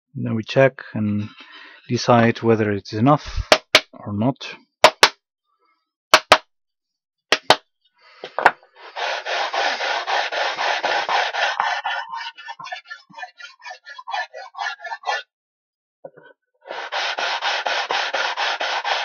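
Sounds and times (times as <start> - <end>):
sharp knocks: 4.9 - 5.2, 6.2 - 6.4
sanding block rubbing wood: 8.8 - 15.3, 16.7 - 19.0.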